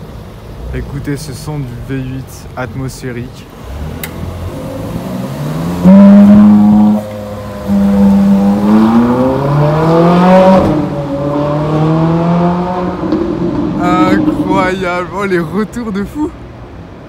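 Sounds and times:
car engine accelerating hard: 3.6 - 15.1.

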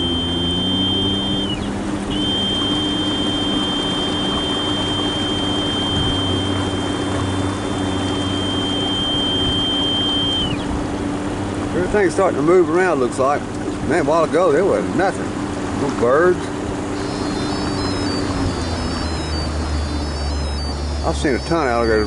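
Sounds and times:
high-pitched whine: 0.0 - 10.7, 17.0 - 22.0
boat motor running: 0.0 - 22.0
water along hull: 0.0 - 22.0.

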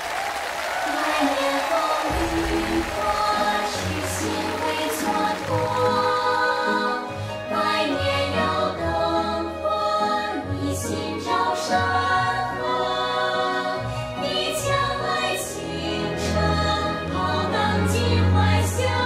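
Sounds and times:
orchestral backing: 0.4 - 19.0
choir singing: 0.7 - 19.0.

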